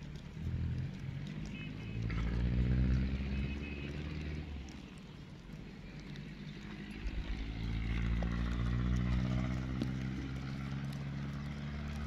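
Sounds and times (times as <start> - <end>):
vehicle engine passing by: 0.3 - 5.0, 6.0 - 12.0.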